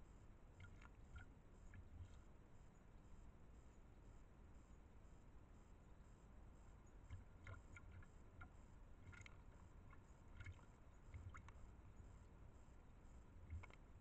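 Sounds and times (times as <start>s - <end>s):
faint ticks: 0.0s - 2.9s, 6.6s - 14.0s
light water splashes: 0.5s - 2.3s, 7.0s - 14.0s.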